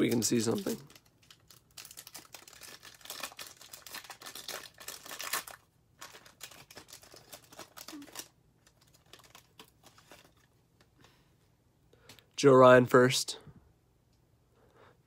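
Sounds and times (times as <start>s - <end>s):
foil wrapper tearing and crinkling: 0.0s - 10.4s.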